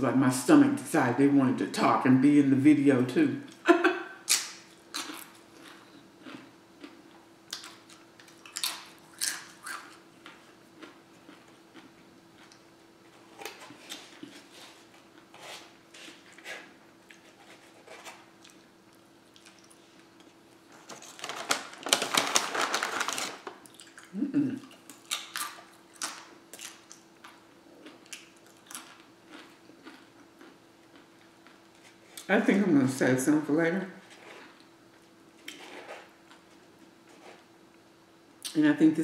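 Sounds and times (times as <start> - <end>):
faint steady hum: 0.0 - 39.0
chewing: 5.0 - 12.7, 18.4 - 20.4, 23.6 - 32.3.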